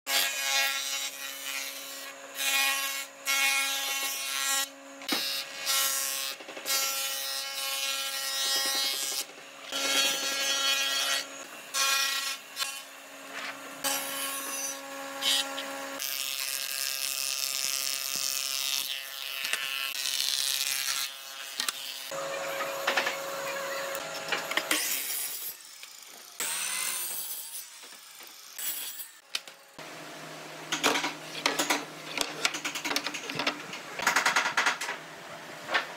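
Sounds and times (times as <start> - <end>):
jointer machine hum: 21.7 - 24.9.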